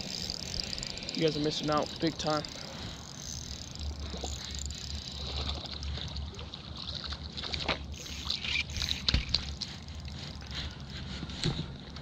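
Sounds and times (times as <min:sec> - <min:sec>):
fishing reel handling clicks: 0:00.0 - 0:05.9, 0:07.9 - 0:10.8.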